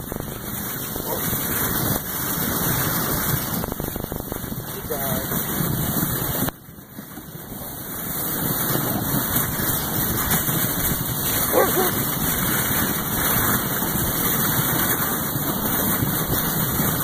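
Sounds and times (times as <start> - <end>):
dog sled running over snow: 0.0 - 17.0.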